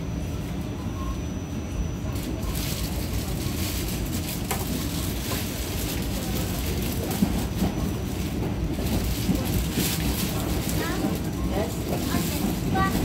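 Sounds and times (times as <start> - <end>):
subway train wheels rumbling: 0.0 - 13.0.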